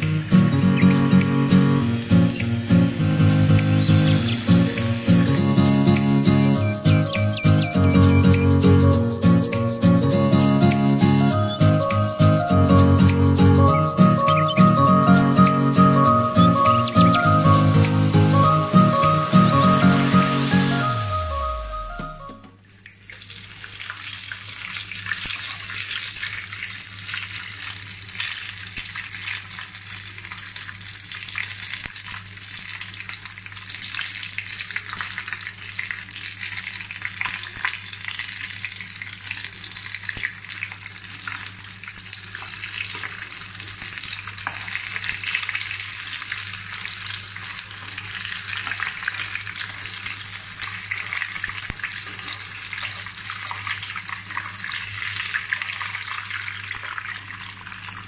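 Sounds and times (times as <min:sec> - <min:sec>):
fish frying in hot oil: 0:00.0 - 0:08.8, 0:22.6 - 0:58.0.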